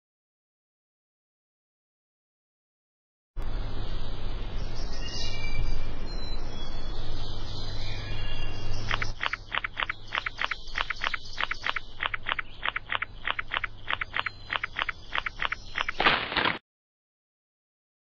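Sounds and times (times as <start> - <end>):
low steady hum: 3.4 - 16.0
insects chirping: 8.8 - 16.0.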